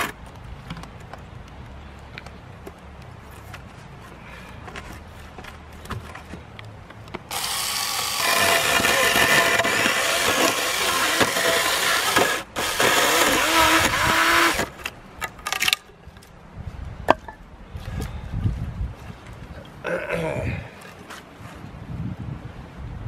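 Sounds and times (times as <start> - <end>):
cordless chainsaw cutting wood: 7.3 - 14.8.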